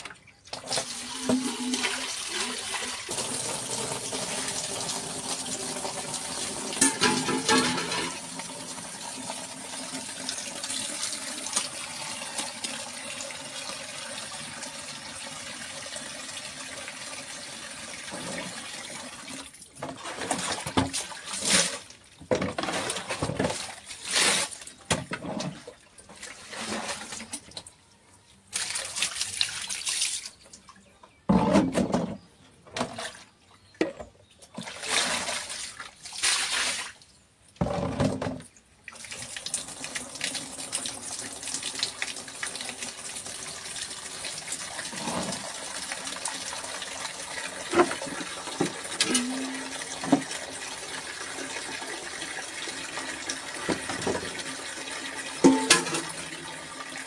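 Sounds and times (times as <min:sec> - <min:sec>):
water running from a tap: 0:00.8 - 0:19.5, 0:39.0 - 0:57.0
water splashing onto concrete: 0:28.5 - 0:30.4, 0:34.7 - 0:37.0.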